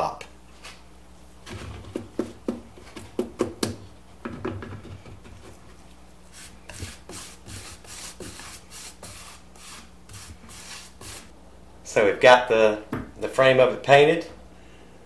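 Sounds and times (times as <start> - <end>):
paintbrush stroking on wood: 6.2 - 11.3.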